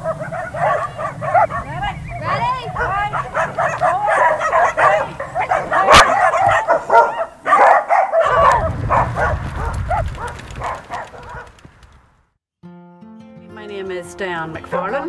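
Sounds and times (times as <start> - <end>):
huskies yelping and howling: 0.0 - 11.5.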